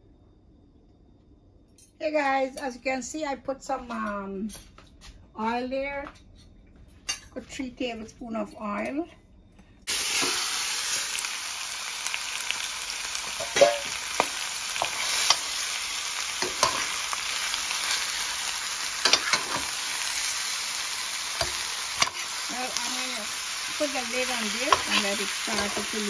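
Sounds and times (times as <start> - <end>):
chicken sizzling in hot oil: 9.9 - 26.0
spoon scraping and knocking pan: 13.3 - 15.5, 16.4 - 17.1, 19.0 - 20.0, 21.4 - 22.8, 23.7 - 26.0.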